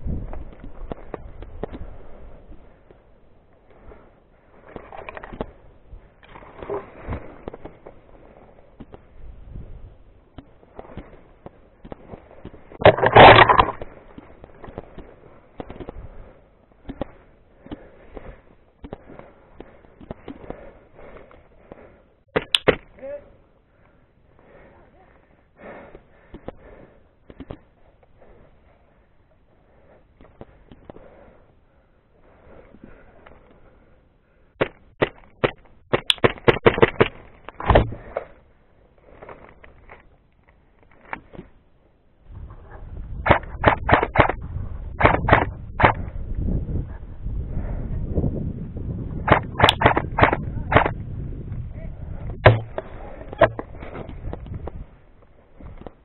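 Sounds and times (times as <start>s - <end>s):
airsoft rifle shots: 34.6s - 38.0s, 43.2s - 44.4s, 45.0s - 46.1s, 49.3s - 51.0s, 52.4s - 53.7s
loud thump: 37.7s - 38.0s, 52.4s - 53.7s.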